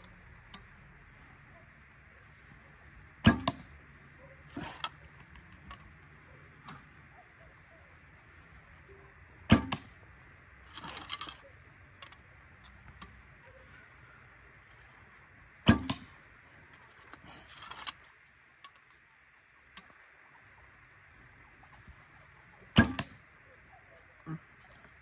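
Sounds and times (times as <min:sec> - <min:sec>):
bowstring snap: 0:03.2 - 0:03.7, 0:15.7 - 0:16.1, 0:22.8 - 0:23.2.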